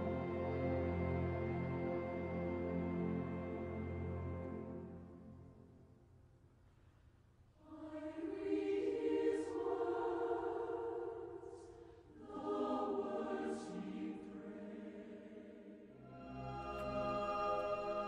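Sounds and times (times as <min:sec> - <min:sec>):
choir singing: 0:00.0 - 0:05.3, 0:07.6 - 0:18.0.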